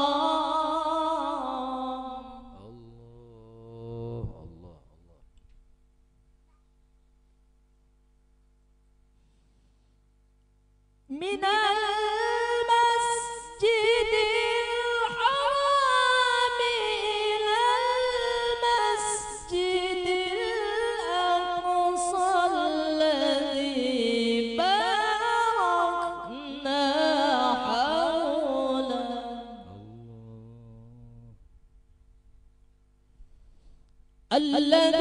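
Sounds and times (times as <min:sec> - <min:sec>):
man reciting melodically: 0:01.7 - 0:05.3, 0:29.6 - 0:31.4.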